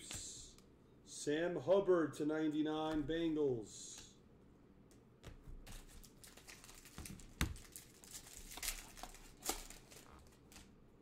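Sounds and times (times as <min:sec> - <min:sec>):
plastic wrappers crinkling: 0:05.7 - 0:10.7.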